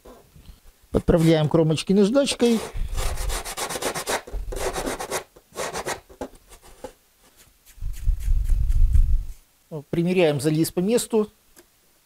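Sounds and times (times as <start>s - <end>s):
sandpaper rubbing on foam: 1.0s - 1.5s, 2.2s - 9.4s.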